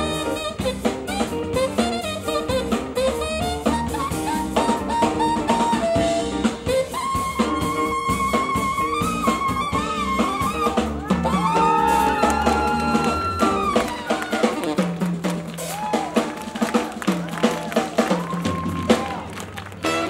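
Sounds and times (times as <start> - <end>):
horn notes bending in pitch: 0.0 - 15.2, 19.8 - 20.0
saxophone runs and long high note: 0.0 - 15.2
jazz-funk band playing: 0.0 - 20.0.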